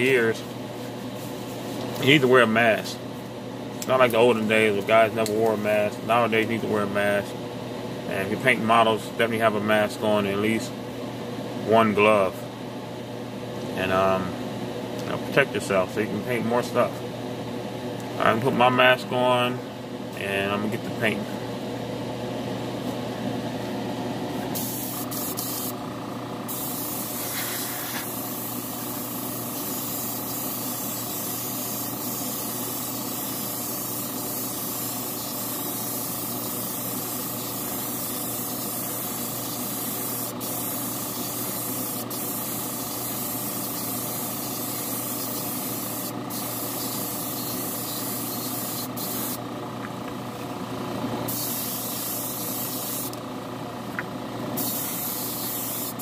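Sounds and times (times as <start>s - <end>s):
spray booth fan hum: 0.0s - 56.0s
spray gun hissing: 24.6s - 25.8s, 26.5s - 49.4s, 51.3s - 53.2s, 54.6s - 56.0s.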